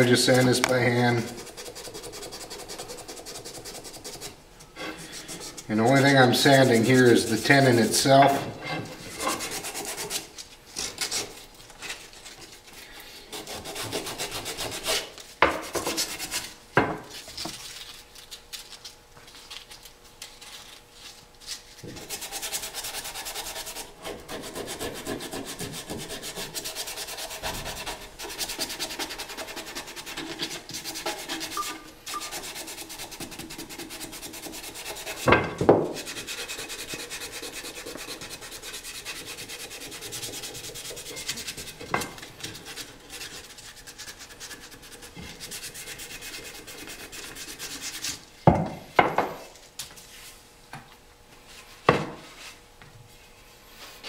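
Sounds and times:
sandpaper rubbing on wood: 0.0s - 8.2s, 9.1s - 11.4s, 13.3s - 16.5s, 21.5s - 41.8s, 42.4s - 48.2s.

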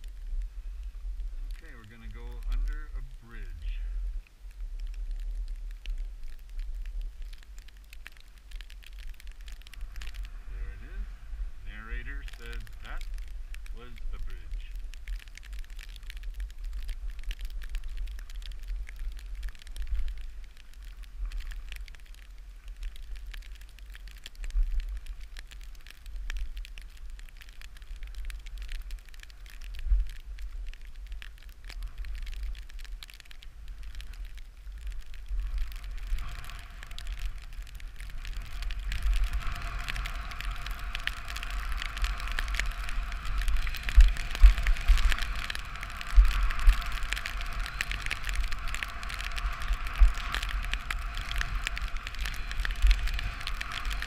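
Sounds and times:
wind buffeting microphone: 0.0s - 54.0s
skis carving over snow: 9.7s - 14.8s, 35.1s - 54.0s.

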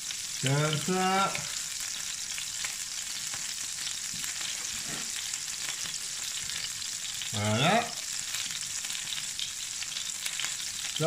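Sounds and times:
fat sizzling in a frying pan: 0.0s - 11.0s.

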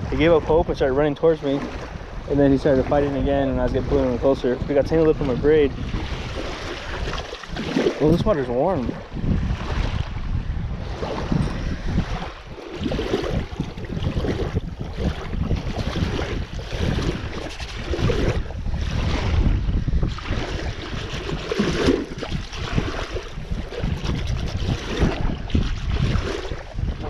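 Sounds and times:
wind buffeting microphone: 0.0s - 27.0s
hands splashing in lake water: 6.0s - 8.2s.

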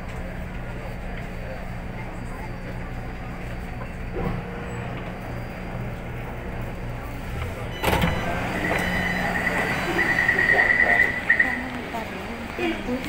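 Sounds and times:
train running hum: 0.0s - 13.0s.

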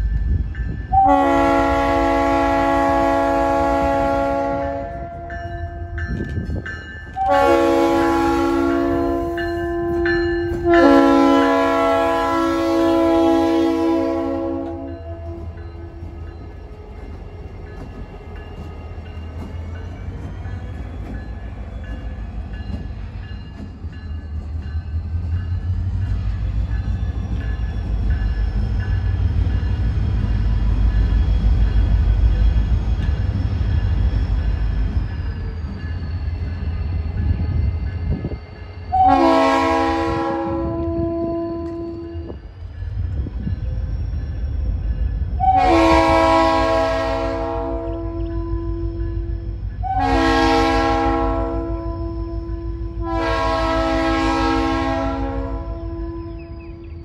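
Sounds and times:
diesel locomotive engine rumble: 0.0s - 57.0s
train air horn chord: 0.9s - 5.3s, 7.2s - 15.9s, 38.9s - 42.1s, 45.4s - 48.8s, 49.8s - 56.5s.

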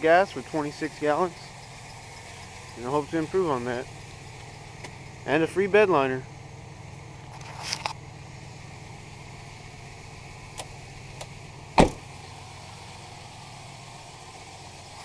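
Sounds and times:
truck engine idling: 0.0s - 15.0s
sharp thump: 11.8s - 12.1s.

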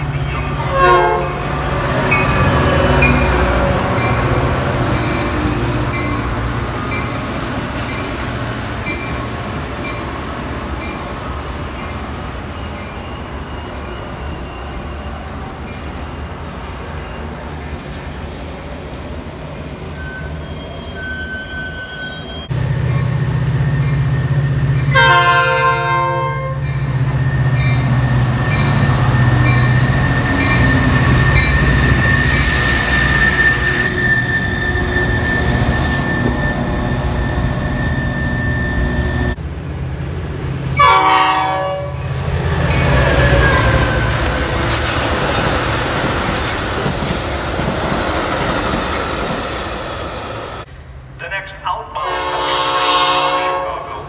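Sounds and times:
diesel locomotive engine drone: 0.0s - 54.0s
train coaches rumbling past: 0.0s - 54.0s
locomotive horn: 0.6s - 1.6s, 24.9s - 26.7s, 40.8s - 42.0s, 52.0s - 54.0s.

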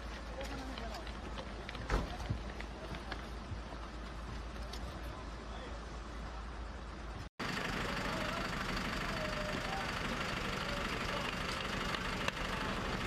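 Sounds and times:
bus engine idling: 3.7s - 13.0s.

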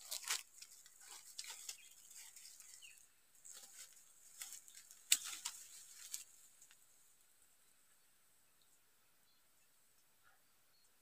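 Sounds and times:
dry leaves crackling and rustling: 0.0s - 7.1s.

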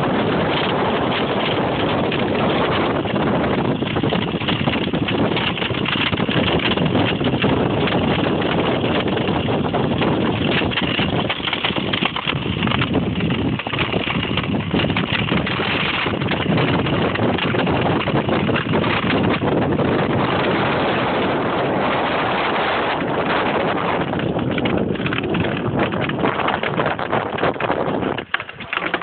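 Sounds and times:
runners scraping over ice: 0.0s - 29.0s
wind noise on microphone: 0.0s - 29.0s.

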